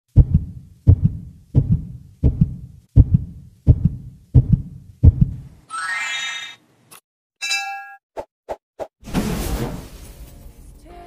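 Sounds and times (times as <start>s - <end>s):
heartbeat double thump: 0.1s - 5.4s.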